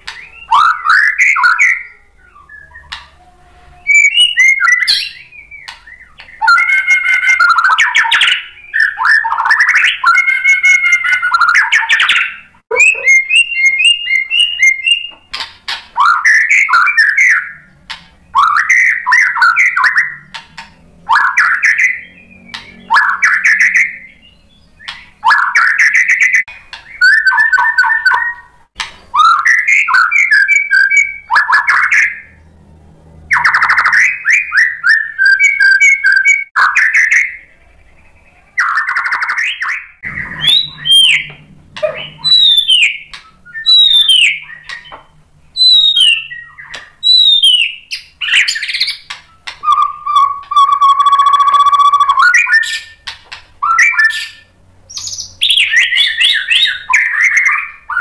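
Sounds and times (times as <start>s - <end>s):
bird singing whistled phrases: 0.0s - 15.4s, 16.0s - 20.3s, 21.1s - 28.5s, 29.2s - 32.4s, 33.3s - 45.0s, 45.6s - 58.0s
bird chattering trills: 3.9s - 15.4s, 36.6s - 45.0s.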